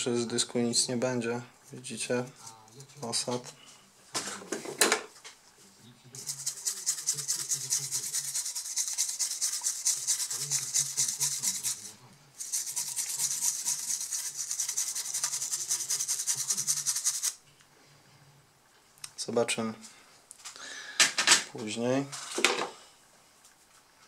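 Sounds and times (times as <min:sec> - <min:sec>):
toothbrush scrubbing circuit board: 0:06.2 - 0:17.4.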